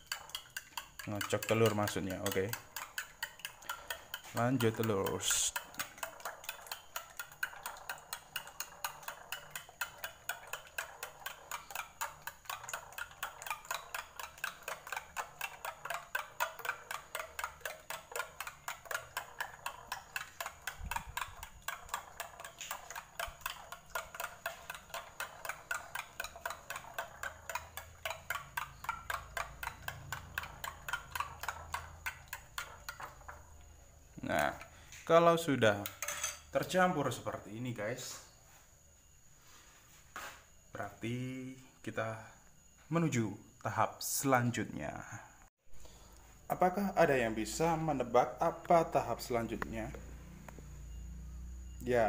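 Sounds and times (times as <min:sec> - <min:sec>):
spoon clicking against glass bowl: 0:00.0 - 0:33.4
egg sloshing: 0:00.0 - 0:34.9.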